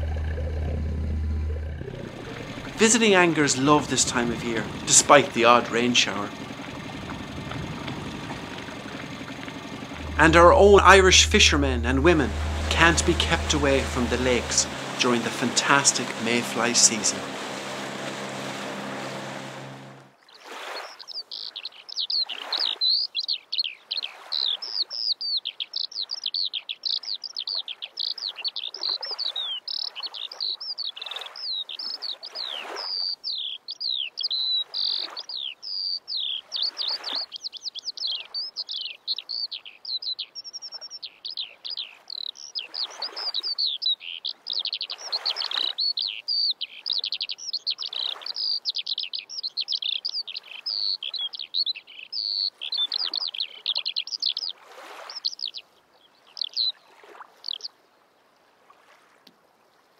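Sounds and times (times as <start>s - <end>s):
songbirds chirping and twittering: 20.9s - 57.7s.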